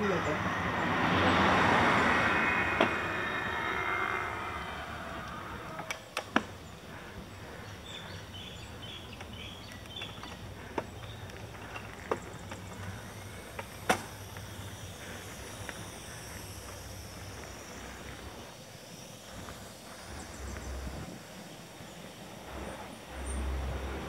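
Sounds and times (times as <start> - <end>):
bike tyres rolling on pavement: 0.0 - 24.0
bike clicks and rattles: 5.8 - 18.4.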